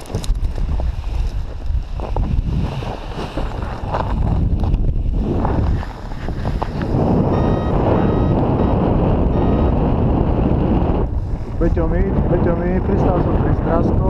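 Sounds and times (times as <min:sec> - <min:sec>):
wind rushing over microphone: 0:00.0 - 0:14.0
short electronic beeps: 0:07.2 - 0:10.1.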